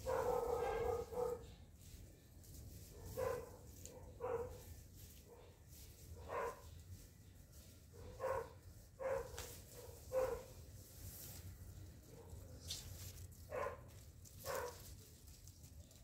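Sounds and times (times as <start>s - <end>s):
dog barking: 0.0s - 1.5s, 3.0s - 5.6s, 6.2s - 6.7s, 8.0s - 10.6s, 13.5s - 14.8s.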